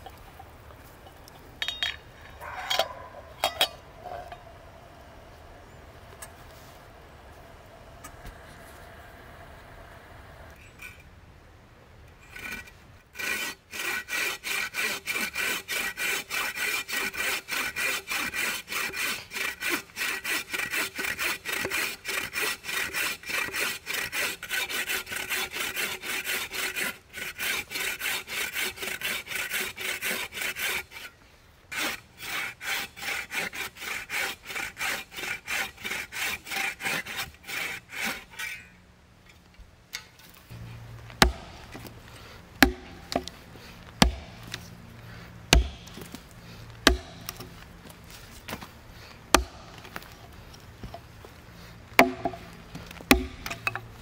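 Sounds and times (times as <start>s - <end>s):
bow saw cutting log: 12.3s - 38.7s, 40.5s - 54.0s.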